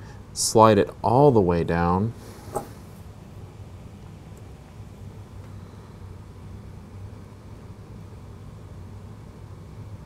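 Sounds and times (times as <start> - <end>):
low room rumble: 0.0 - 10.0.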